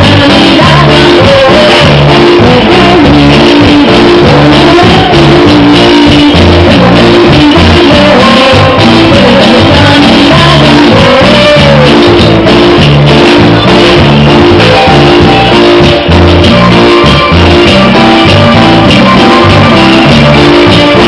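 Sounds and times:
woman singing: 0.0 - 12.4
drums with steady beat: 0.0 - 21.0
electric guitar: 0.0 - 21.0.

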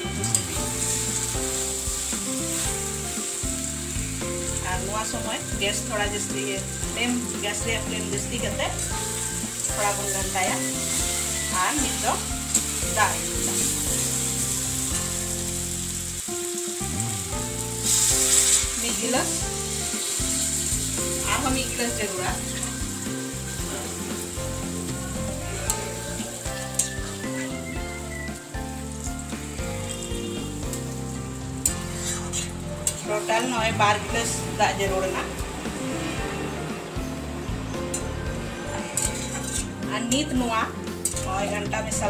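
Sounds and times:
curry sizzling in a pan: 0.0 - 42.0
metal spatula scraping pan: 20.0 - 27.5, 31.6 - 33.6, 37.7 - 40.3.

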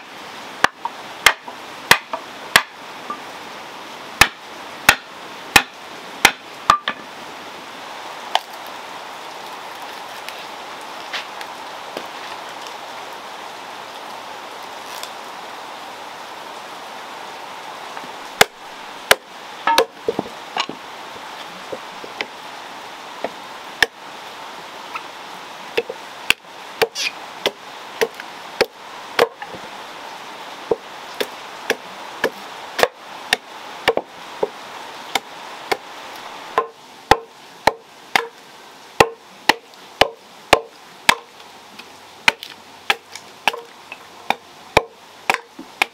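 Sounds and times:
steady hiss: 0.0 - 45.9
machete chopping wood: 0.6 - 2.7, 4.2 - 7.0, 19.1 - 20.8, 25.8 - 29.4, 30.7 - 34.0, 36.6 - 38.3, 39.0 - 41.3, 42.2 - 43.7, 44.3 - 45.9.

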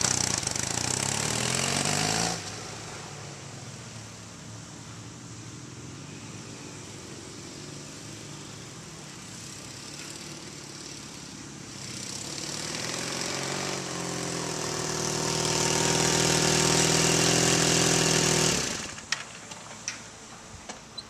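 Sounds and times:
motorcycle engine running: 0.0 - 2.5, 9.2 - 19.1.

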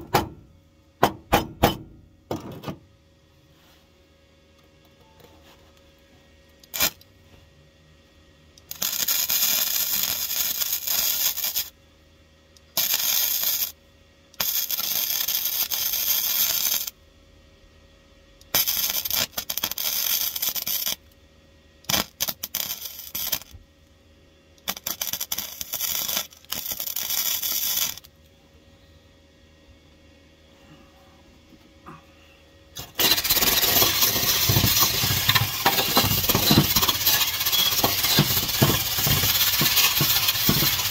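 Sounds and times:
welder arcing: 6.6 - 7.0, 8.6 - 11.8, 12.7 - 13.8, 14.4 - 17.0, 18.5 - 21.2, 21.8 - 23.6, 24.6 - 28.1, 32.8 - 40.9.

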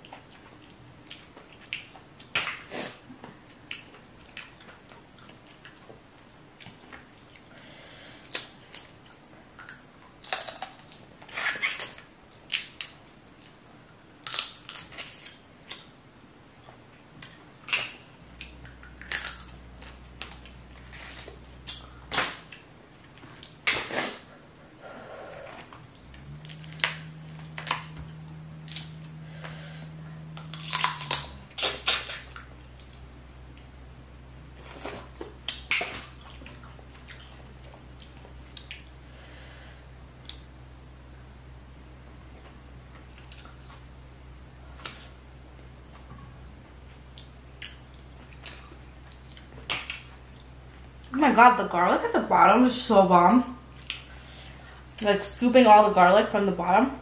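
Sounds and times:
chewing and mouth sounds: 0.0 - 2.7, 34.6 - 39.0
shells cracking and crunching: 10.2 - 11.0, 14.2 - 15.3, 18.8 - 20.4, 30.5 - 32.2.

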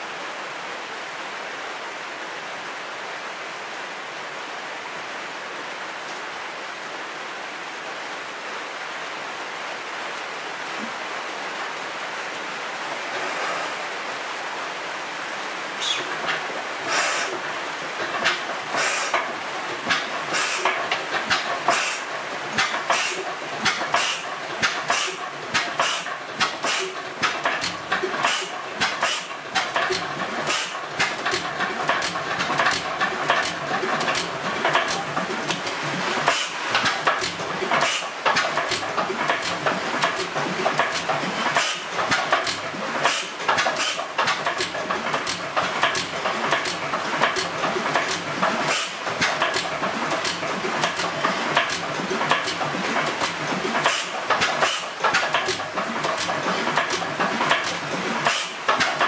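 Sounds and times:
stationary engine clicks and knocks: 15.8 - 59.0
valve gear and flywheel clatter: 15.8 - 59.0.

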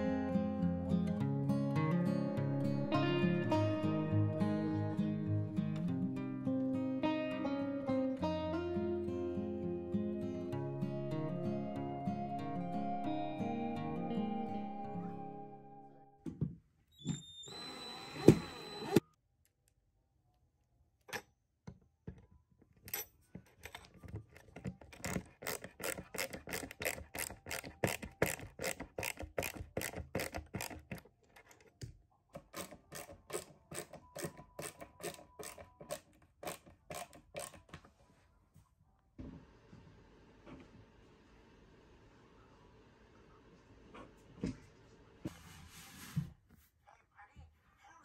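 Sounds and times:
cordless drill running: 17.4 - 19.0.

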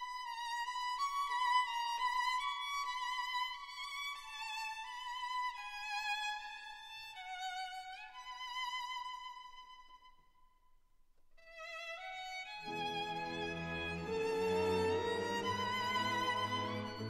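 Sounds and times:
slow violin melody: 11.4 - 17.0.

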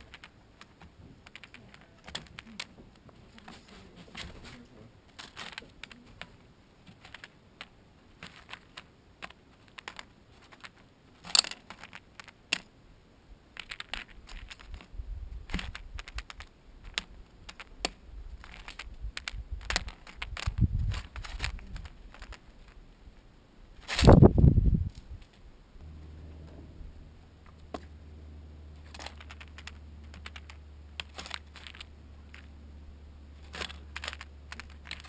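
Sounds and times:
low bumping sounds: 25.8 - 29.0.

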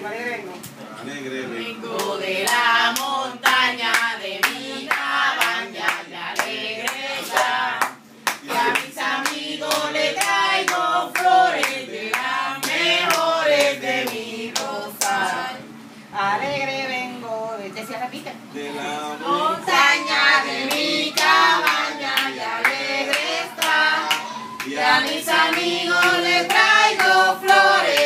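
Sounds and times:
voices singing together: 1.0 - 15.8, 18.5 - 28.0
hands clapping a beat: 2.0 - 15.2, 20.6 - 28.0.

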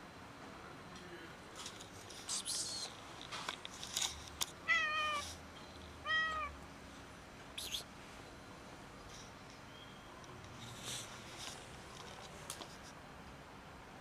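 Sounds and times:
cat meowing: 4.6 - 5.2, 6.0 - 6.6.

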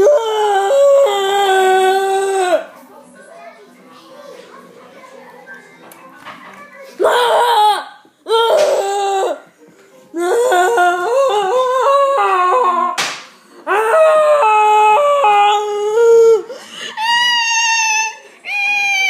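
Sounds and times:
sharp slap: 13.0 - 13.4.

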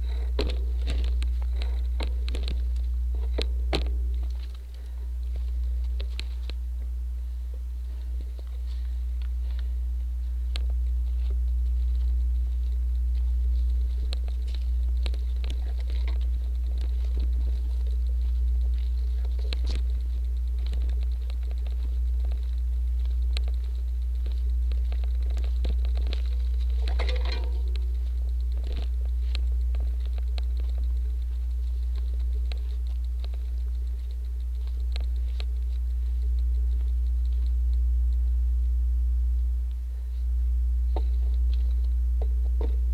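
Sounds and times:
bike clicks and rattles: 0.0 - 6.6, 10.4 - 37.6
bike riding rumble on gravel: 0.0 - 37.8.

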